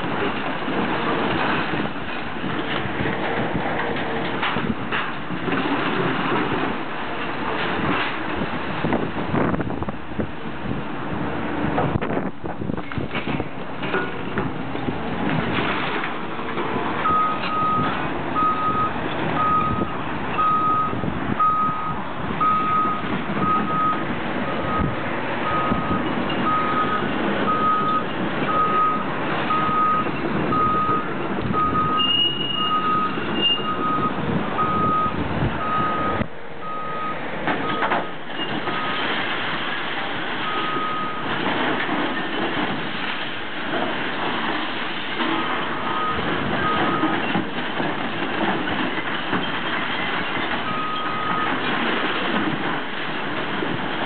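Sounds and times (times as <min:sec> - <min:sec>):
demolition debris knocks: 0:00.0 - 0:09.8, 0:12.1 - 0:18.1, 0:37.5 - 0:54.0
diesel engine: 0:00.0 - 0:54.0
excavator travel alarm beeping: 0:17.0 - 0:24.0, 0:24.6 - 0:39.0, 0:40.4 - 0:41.3, 0:45.4 - 0:47.3, 0:50.6 - 0:51.6.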